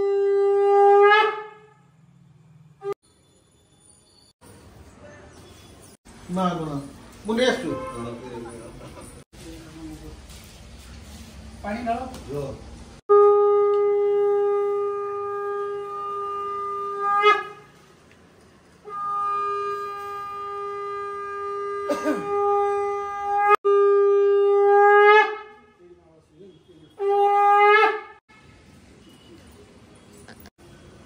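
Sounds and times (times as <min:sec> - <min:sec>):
conch shell blasts: 0:13.1 - 0:17.7, 0:18.8 - 0:25.7.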